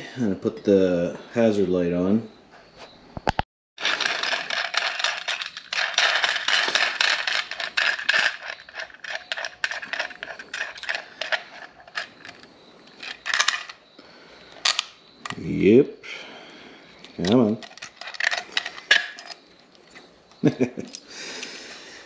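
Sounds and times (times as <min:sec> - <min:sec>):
wire and connectors rustling: 0:03.8 - 0:13.8.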